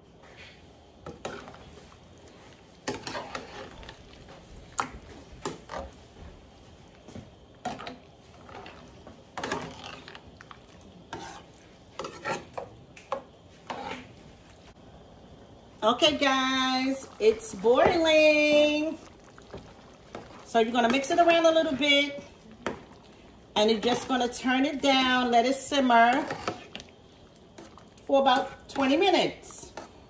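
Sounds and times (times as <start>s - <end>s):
metal spoon scraping a pan: 2.8s - 4.0s, 7.6s - 10.2s, 11.1s - 12.7s, 13.5s - 14.2s, 25.7s - 26.8s.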